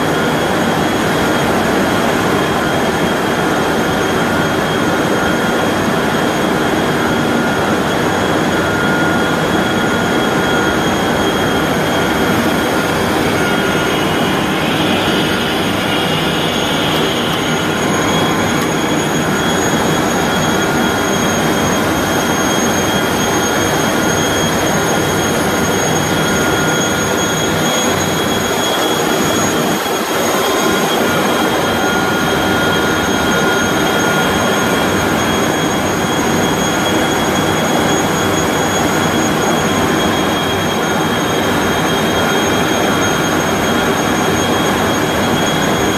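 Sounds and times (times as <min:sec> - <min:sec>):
high-pitched whine tones: 0:00.0 - 0:45.9
loud steady machine noise: 0:00.0 - 0:45.9.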